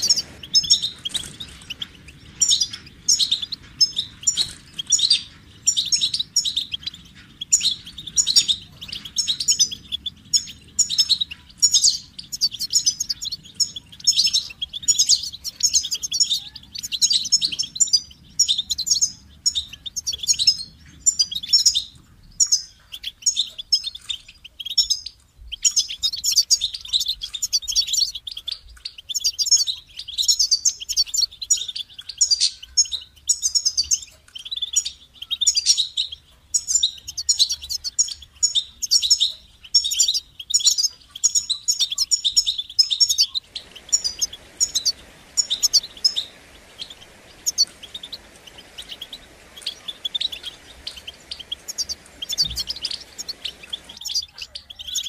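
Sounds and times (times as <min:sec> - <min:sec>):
goldfinch singing: 0:00.0 - 0:55.0.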